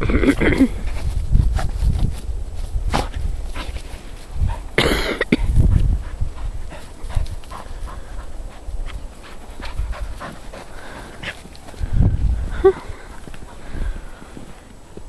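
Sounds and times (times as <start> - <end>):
footsteps crunching in snow: 0.6 - 4.7
dog panting: 5.6 - 11.8, 12.7 - 13.8.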